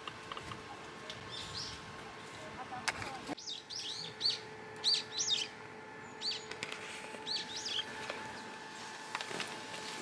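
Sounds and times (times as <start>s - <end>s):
songbird chirping: 3.4s - 6.6s, 7.2s - 8.5s.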